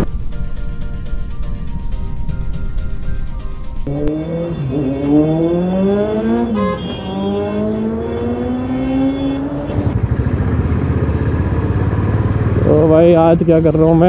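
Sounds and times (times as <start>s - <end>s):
motorcycle engine accelerating: 3.8s - 13.6s.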